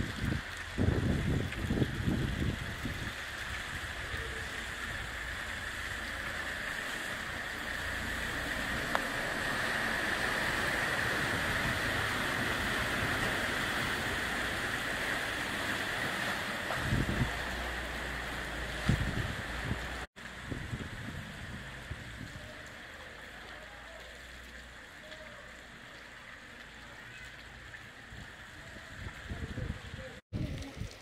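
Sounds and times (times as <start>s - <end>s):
van splashing through water: 0.1s - 20.1s.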